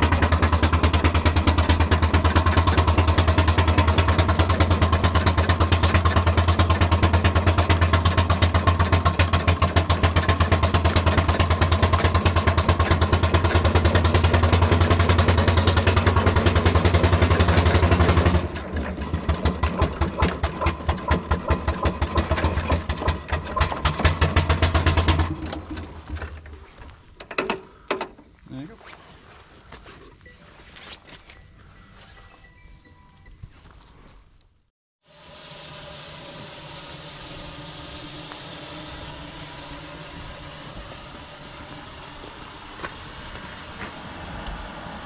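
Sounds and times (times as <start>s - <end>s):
steam engine mechanical clatter: 0.0s - 28.2s
low hum: 30.1s - 45.0s.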